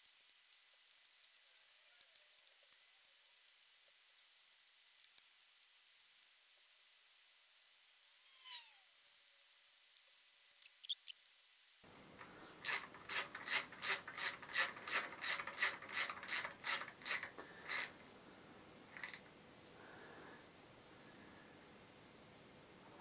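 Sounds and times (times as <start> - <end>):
hand ratchet clicking: 0.0 - 6.3, 12.6 - 17.9.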